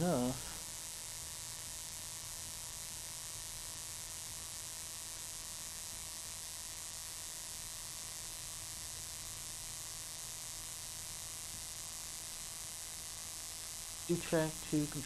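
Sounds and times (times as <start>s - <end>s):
electrical hiss: 0.0s - 15.0s
faint electrical buzz: 0.0s - 15.0s.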